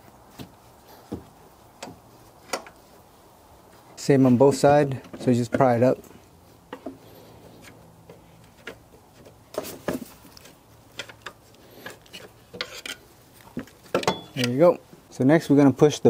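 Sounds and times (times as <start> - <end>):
metal clicks scrapes and knocks: 1.8 - 2.8, 6.7 - 14.6.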